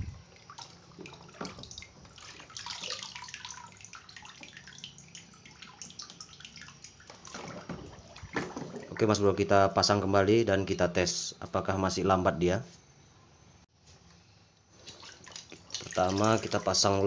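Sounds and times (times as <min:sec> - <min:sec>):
water dripping in plastic tub: 0:00.3 - 0:09.1, 0:14.9 - 0:16.8.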